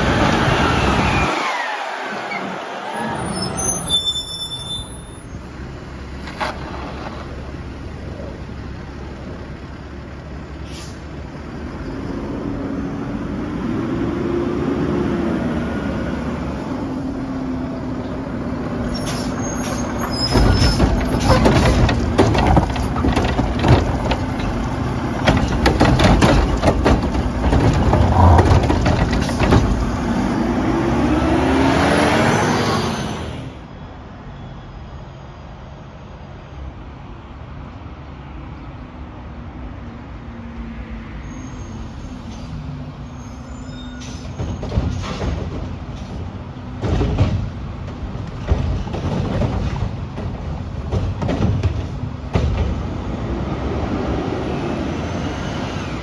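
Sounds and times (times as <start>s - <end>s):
air brake hiss: 10.6s - 11.1s
clattering knocks: 20.3s - 30.0s, 44.4s - 53.0s.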